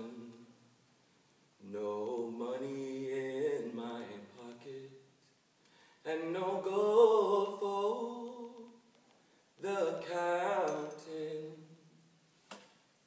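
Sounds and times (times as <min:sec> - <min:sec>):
man singing unaccompanied: 0:00.0 - 0:00.7, 0:01.6 - 0:05.2, 0:06.0 - 0:08.9, 0:09.6 - 0:12.0.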